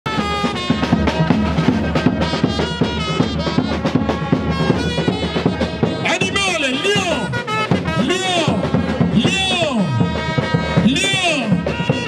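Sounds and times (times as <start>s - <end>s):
drums beating: 0.1s - 12.0s
horn-like held notes: 0.1s - 12.0s.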